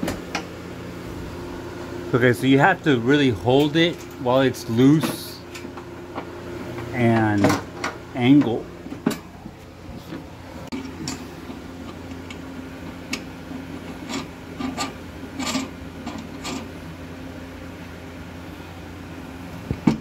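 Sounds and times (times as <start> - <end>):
metal scraping and rubbing: 13.7 - 16.7.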